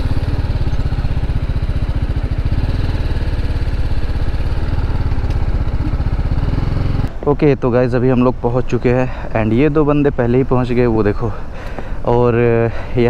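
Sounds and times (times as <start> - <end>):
motorcycle engine idling: 0.0 - 7.1.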